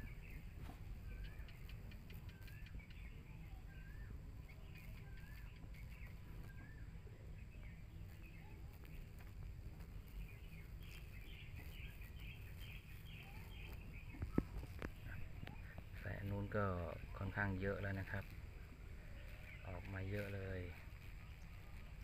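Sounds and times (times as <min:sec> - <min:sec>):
high bird chirps: 0:00.0 - 0:09.0, 0:10.1 - 0:18.3.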